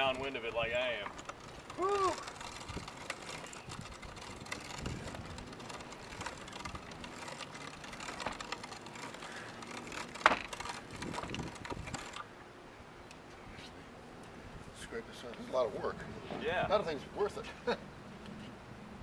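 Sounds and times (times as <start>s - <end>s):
meat grinder creaking and clicking: 0.0s - 12.3s.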